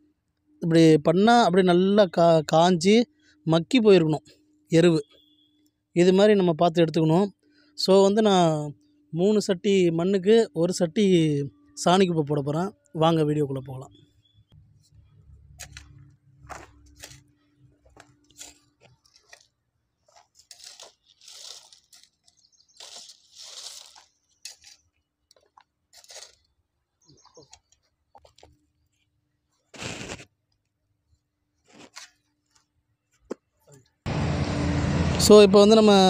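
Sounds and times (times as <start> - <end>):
hoe scraping dry soil: 15.5 - 26.6, 29.5 - 30.3, 31.6 - 32.8.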